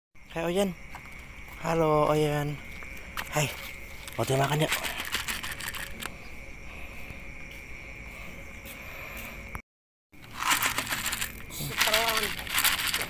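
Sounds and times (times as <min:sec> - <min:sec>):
crickets chirring: 0:00.2 - 0:09.6, 0:10.2 - 0:13.0
loud rustling: 0:10.2 - 0:13.0.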